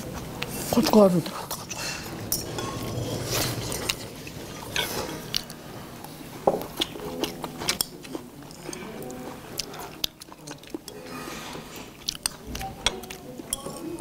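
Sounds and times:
chewing and biting: 11.5 - 13.2.

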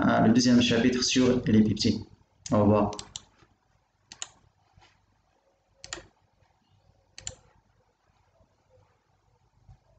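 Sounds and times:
computer mouse clicking: 2.4 - 5.0, 5.8 - 7.6.

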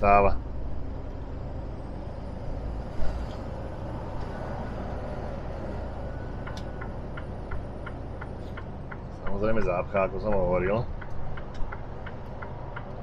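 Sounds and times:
truck engine and tyre rumble: 0.0 - 13.0
turn indicator ticking: 6.4 - 13.0.

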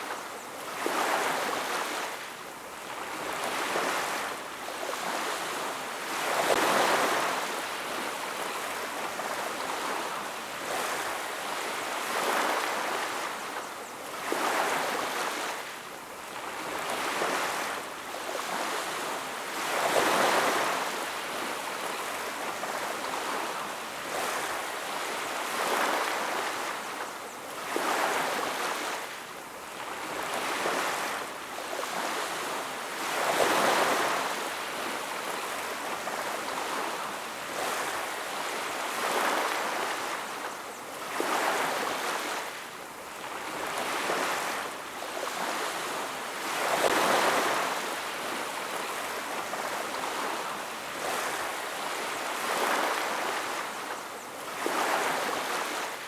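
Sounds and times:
ocean waves breaking: 41.0 - 42.6, 43.3 - 56.0.

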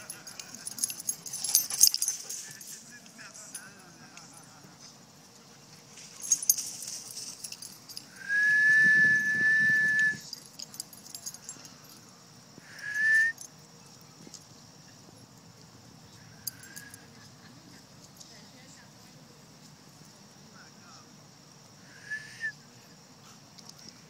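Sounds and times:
person whistling: 8.2 - 10.2, 12.7 - 13.4, 21.9 - 22.6.

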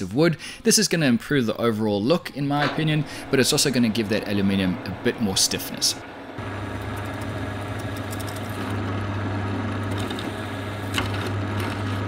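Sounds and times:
drill press motor hum: 6.0 - 12.0.

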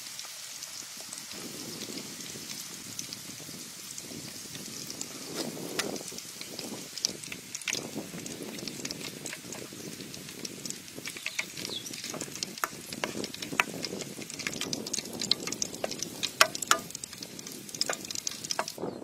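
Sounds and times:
deep-frying sizzle with pops: 0.0 - 19.0.

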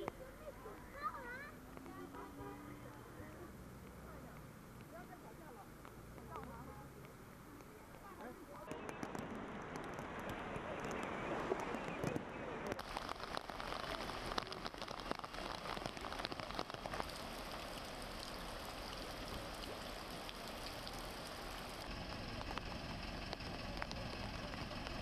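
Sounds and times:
heavy rain hissing: 12.5 - 25.0.

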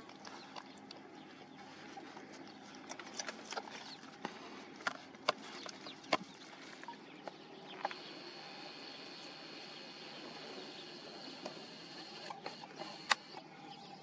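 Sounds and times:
dogs feeding at a bowl: 0.0 - 13.4
steady high whine: 4.5 - 14.0.

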